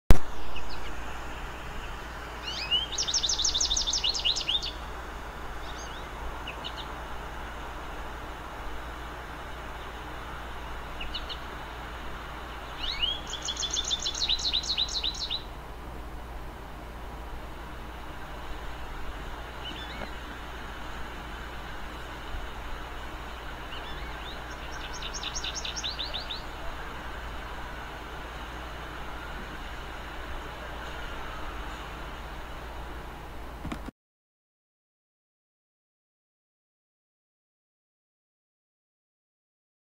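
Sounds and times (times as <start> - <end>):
steady low background rumble: 0.2 - 33.9
songbird rising chirps: 0.3 - 7.8, 8.8 - 15.5, 18.4 - 32.0
bird chirping: 0.4 - 1.0, 1.7 - 4.9, 5.6 - 7.0, 11.0 - 11.6, 12.4 - 15.5, 19.6 - 20.4, 23.6 - 27.0.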